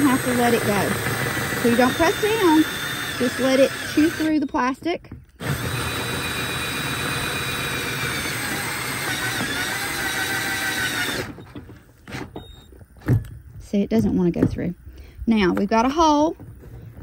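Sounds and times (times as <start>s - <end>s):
drill hole saw cutting plastic: 0.0s - 11.5s.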